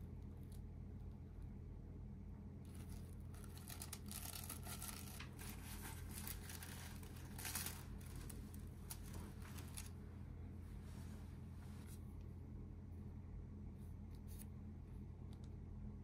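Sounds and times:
mesh bag crinkling and rustling: 0:02.7 - 0:10.0.

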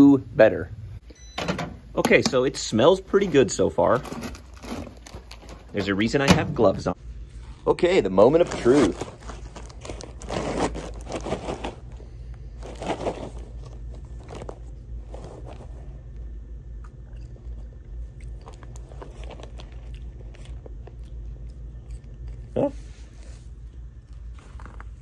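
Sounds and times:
paper bag crinkling: 0:03.1 - 0:06.3, 0:08.0 - 0:16.0
popcorn being chewed: 0:08.2 - 0:25.0.

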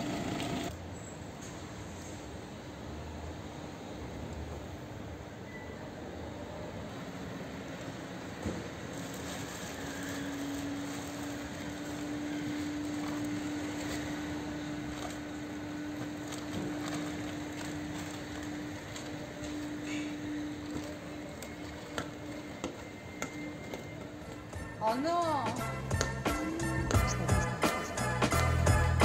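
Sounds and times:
bags loaded into car boot: 0:08.2 - 0:24.8.

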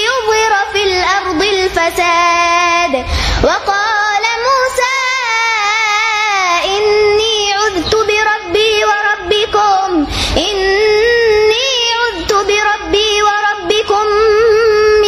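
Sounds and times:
girl reciting melodically: 0:00.0 - 0:15.0
puff of breath: 0:03.0 - 0:03.5, 0:10.1 - 0:10.4.

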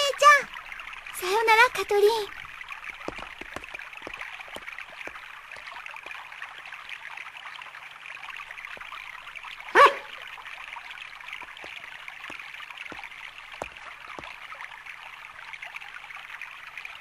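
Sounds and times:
flowing water rushing: 0:00.0 - 0:17.0
dog barking: 0:09.7 - 0:10.2.

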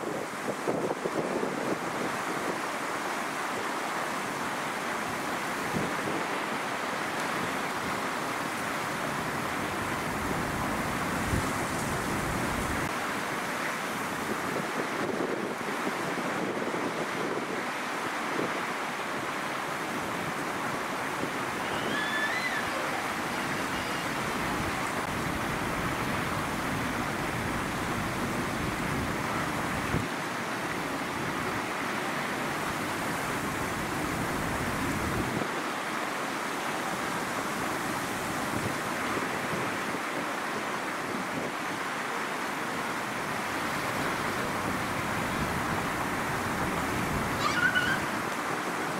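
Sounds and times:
strong gusty wind: 0:00.0 - 0:48.9
wind buffeting microphone: 0:09.0 - 0:13.0, 0:19.9 - 0:30.2, 0:43.3 - 0:48.3.

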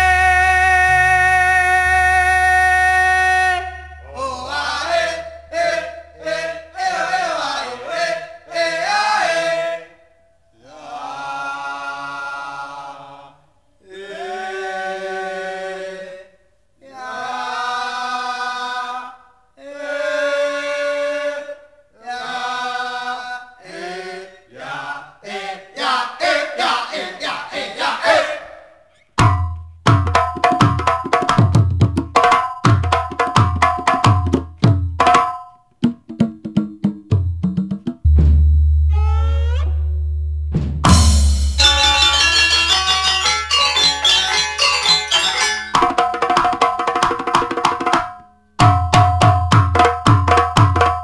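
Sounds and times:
unaccompanied vocal chant: 0:00.0 - 0:28.8.

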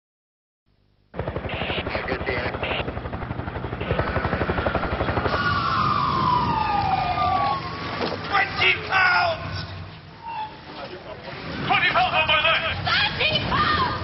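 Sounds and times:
machine pulsing rapidly: 0:01.1 - 0:06.8
siren wail: 0:01.4 - 0:03.0, 0:03.7 - 0:10.7.

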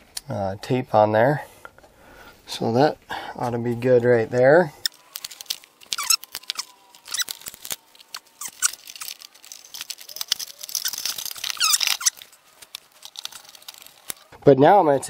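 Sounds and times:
cable clicks and rustles: 0:04.8 - 0:14.3
wire squeaking: 0:04.8 - 0:14.4.

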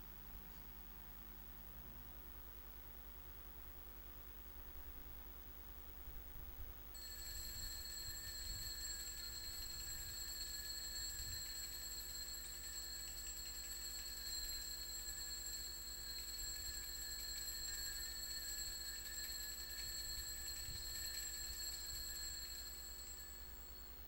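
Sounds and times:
low electrical hum: 0:00.0 - 0:24.0
altar bells ringing: 0:07.0 - 0:24.0.

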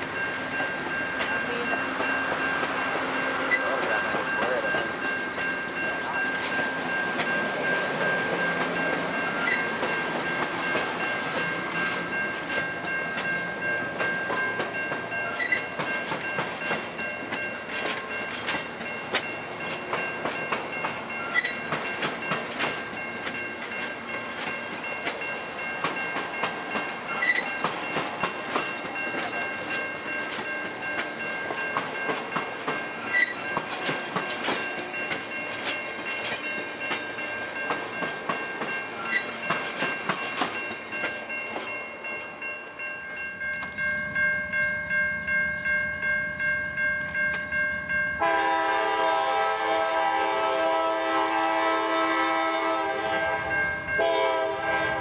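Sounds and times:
train wheels clicking over rail joints: 0:00.0 - 0:44.3.

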